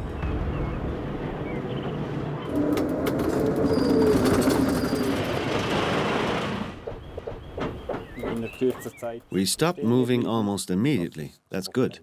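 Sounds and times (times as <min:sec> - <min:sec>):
loud brake grinding: 0:02.5 - 0:06.8.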